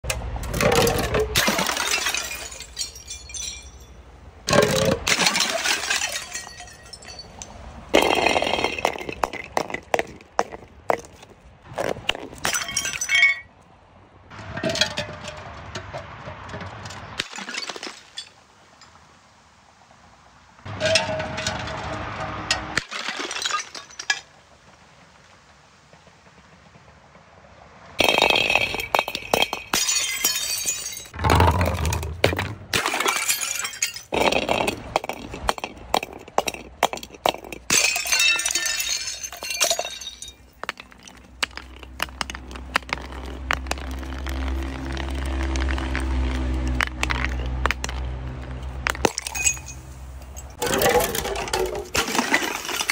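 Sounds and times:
glass bottles breaking: 0.5 - 11.1, 11.8 - 13.5, 14.5 - 15.4, 16.9 - 18.9, 22.7 - 24.3, 28.0 - 48.0, 48.8 - 52.9
glass shards crunching and clinking: 0.6 - 9.8, 12.3 - 13.5, 28.0 - 31.2, 32.8 - 46.1, 49.0 - 52.9.

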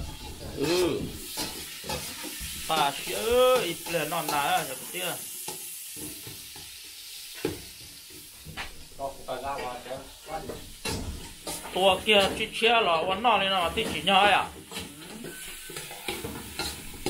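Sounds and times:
metal spatula scraping a pot: 0.0 - 4.7, 14.6 - 17.0
food sizzling in a pot: 0.0 - 17.0
person speaking: 0.5 - 1.2, 2.7 - 5.2.

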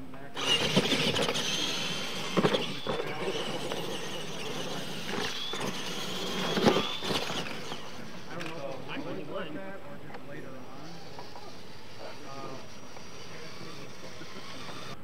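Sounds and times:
rc truck drivetrain whine: 0.0 - 15.0
tyres scraping on dirt: 0.2 - 15.0
thumps: 0.4 - 9.0.

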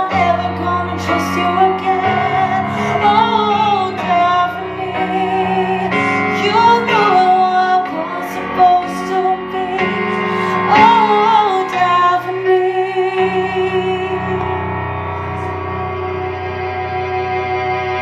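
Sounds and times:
woman singing into microphone: 0.0 - 15.7
instrumental accompaniment: 0.0 - 18.0.

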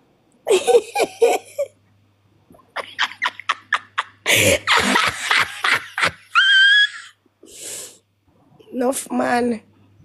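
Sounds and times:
person laughing hard: 0.5 - 1.7, 2.8 - 7.1.

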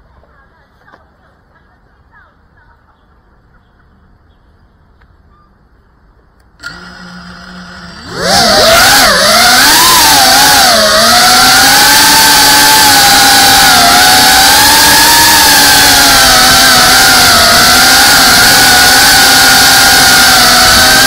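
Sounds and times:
drone motors whining: 6.6 - 21.0.

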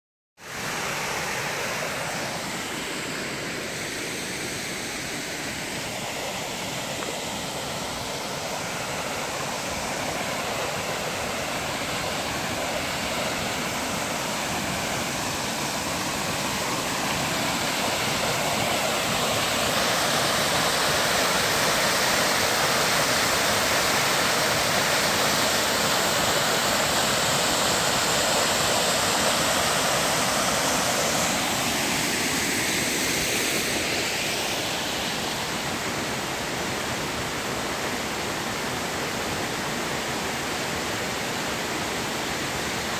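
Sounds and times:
waterfall splashing into pool: 5.6 - 34.9.

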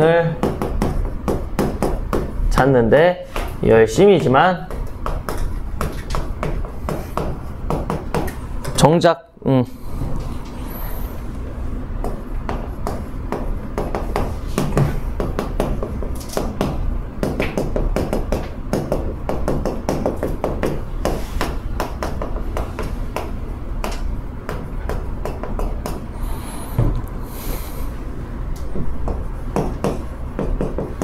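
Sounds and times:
steady low hum: 0.0 - 31.0
chalk tapping and scraping on blackboard: 4.1 - 8.4, 12.0 - 26.0.

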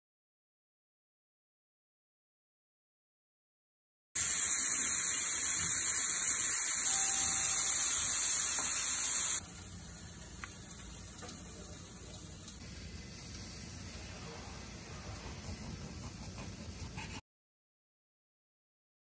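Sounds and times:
steaks sizzling on a grill: 4.2 - 9.4
faint hiss: 4.2 - 15.6.

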